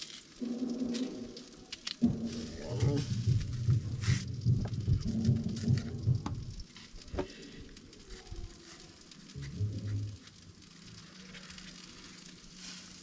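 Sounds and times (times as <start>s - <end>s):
food sizzling on a grill: 0.0s - 13.0s
low rumble: 0.4s - 6.8s, 9.3s - 10.9s.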